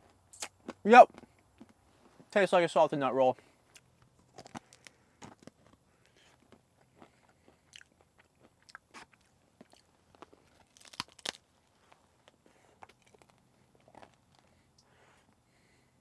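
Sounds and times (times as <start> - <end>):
sharp biting crunches: 0.3 - 1.8, 3.7 - 14.5
person chewing crunchy snack: 0.4 - 1.9, 3.7 - 14.7.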